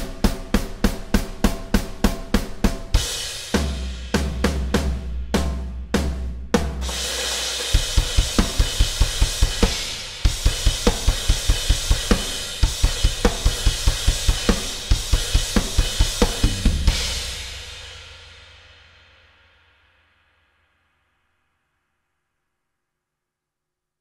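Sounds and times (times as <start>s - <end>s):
electronic drum kit solo: 0.0s - 18.4s
cymbal crash: 6.8s - 20.7s.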